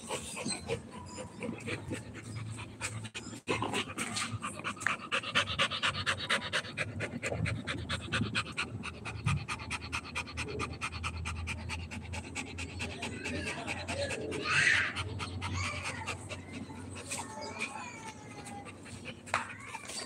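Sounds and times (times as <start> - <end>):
dog panting: 0.0 - 20.0.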